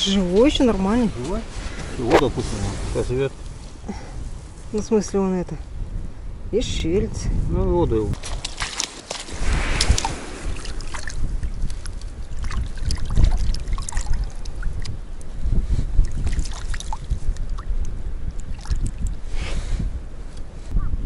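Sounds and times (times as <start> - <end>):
wind on microphone: 0.0 - 21.0
hand splashing in shallow water: 8.2 - 15.0, 16.0 - 17.7.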